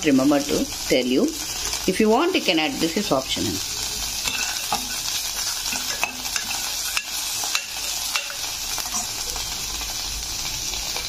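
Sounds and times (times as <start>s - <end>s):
onions sizzling in hot oil: 0.0s - 11.0s
metal spoon scraping pot: 4.2s - 9.2s.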